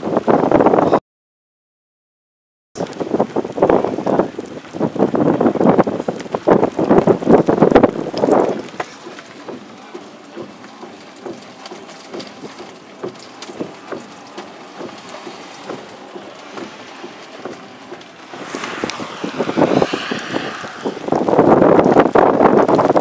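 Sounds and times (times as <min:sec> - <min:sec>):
wind rushing on microphone: 0:00.0 - 0:01.0, 0:02.8 - 0:09.7, 0:12.5 - 0:23.0
raindrop ticks: 0:02.8 - 0:20.4.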